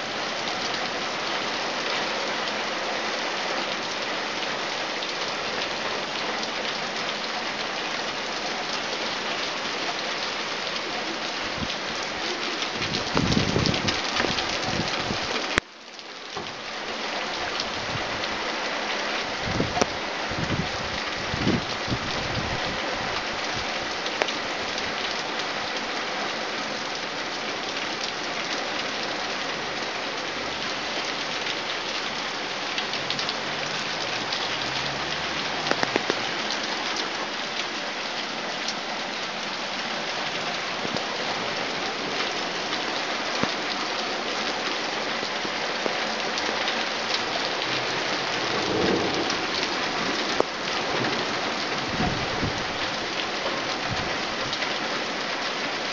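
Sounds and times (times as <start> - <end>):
torrential rain: 0.0 - 55.9
water drips ticking: 32.8 - 37.6
distant thunder rumble: 48.5 - 52.6.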